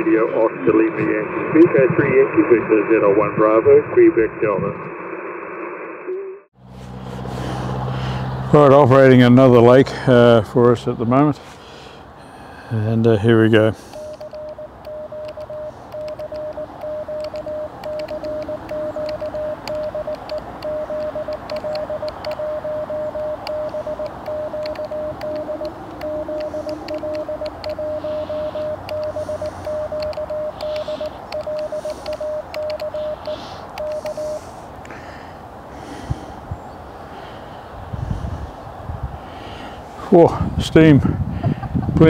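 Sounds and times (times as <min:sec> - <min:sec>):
morse code tone: 0:13.8 - 0:34.6.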